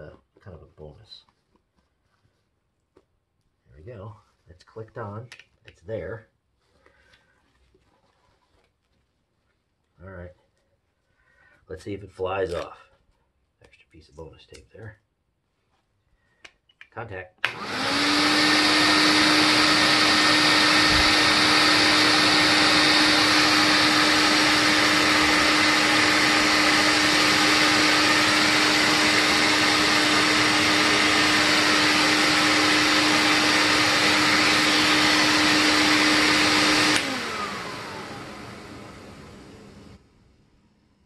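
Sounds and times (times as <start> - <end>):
vacuum cleaner running: 17.4 - 40.1
motor winding down whine: 17.5 - 39.9.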